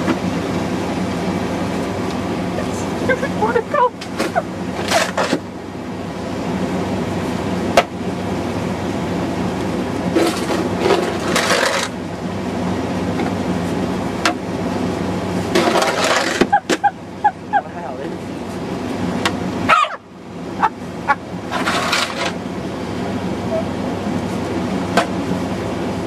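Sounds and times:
steady low hum: 0.0s - 26.0s
snow shovel scraping snow: 15.6s - 16.4s, 21.5s - 22.4s.

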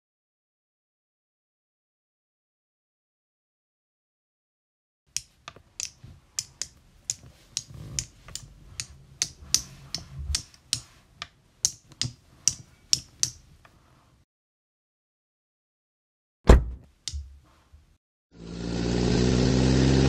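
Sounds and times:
plastic bricks clicking: 5.1s - 13.4s.

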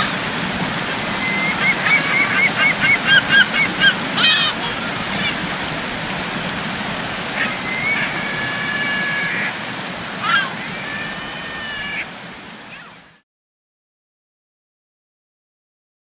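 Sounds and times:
water: 0.0s - 13.2s
wind: 0.0s - 13.2s
drawn-out bird calls: 1.1s - 5.7s.

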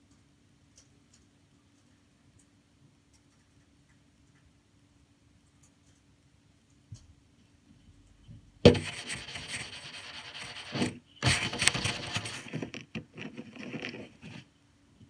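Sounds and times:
fabric rubbing on microphone: 8.7s - 14.5s.

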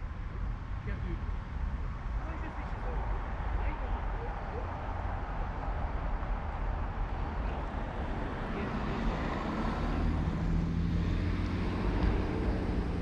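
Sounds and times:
road traffic noise: 0.0s - 13.0s
vehicle engine hum: 0.0s - 13.0s.

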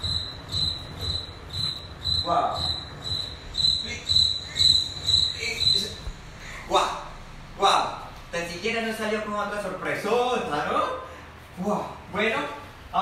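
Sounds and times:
high-pitched chirping: 0.0s - 7.0s.

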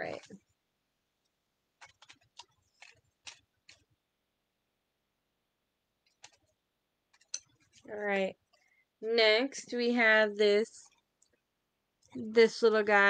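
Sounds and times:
paper picks clicking and rustling: 1.8s - 3.9s, 6.0s - 7.9s.

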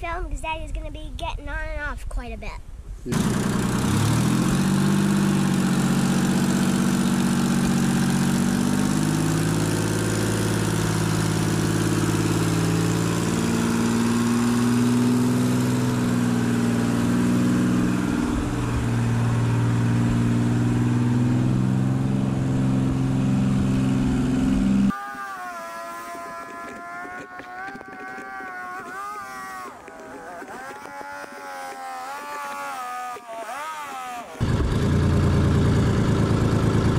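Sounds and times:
diesel engine running: 3.1s - 24.9s, 34.4s - 36.9s.

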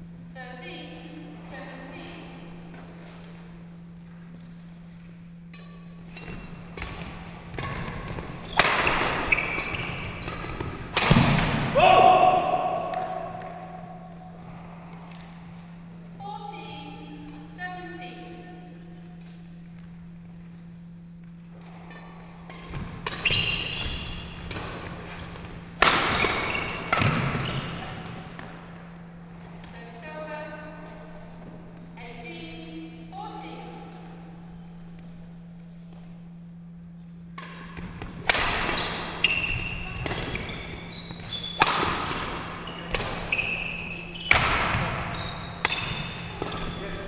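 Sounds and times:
steady low hum: 0.0s - 47.0s
rackets hitting shuttlecock: 5.5s - 11.8s, 12.5s - 13.9s, 21.9s - 28.6s, 37.3s - 47.0s
shoe squeaks on court floor: 9.2s - 10.7s, 23.1s - 24.2s, 25.1s - 27.9s, 38.7s - 41.7s, 42.6s - 44.4s, 45.1s - 47.0s.

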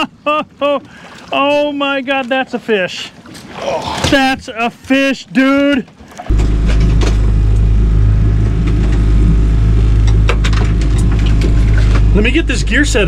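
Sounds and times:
outboard motor droning: 6.0s - 13.0s.

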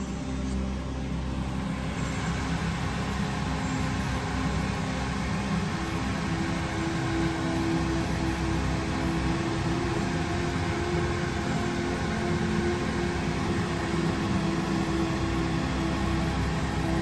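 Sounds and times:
exhaust fan whirring: 0.0s - 17.0s.

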